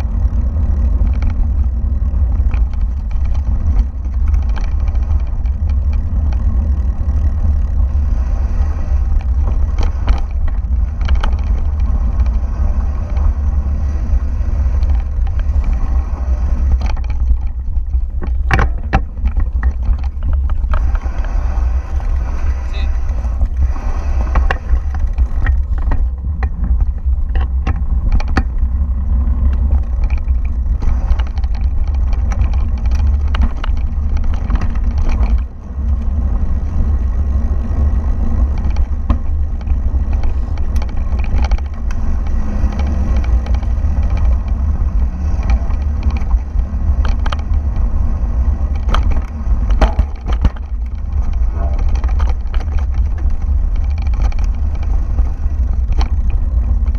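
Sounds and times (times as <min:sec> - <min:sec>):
bike rattling over bumps: 0:00.0 - 0:56.9
wind rumble on microphone: 0:00.0 - 0:56.9.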